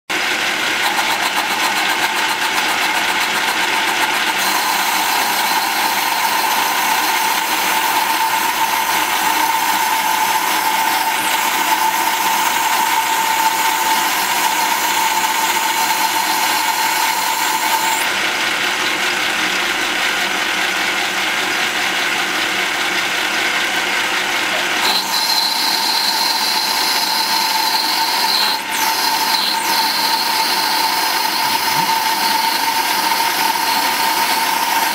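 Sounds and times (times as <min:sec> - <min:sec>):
metal lathe running: 0:00.1 - 0:34.9
gears whirring: 0:00.8 - 0:18.2, 0:24.5 - 0:34.9.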